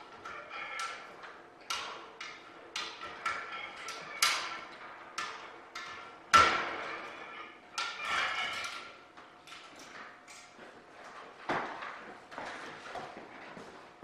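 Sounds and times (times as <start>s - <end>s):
metal clanks on steel tubing: 0.0s - 10.6s.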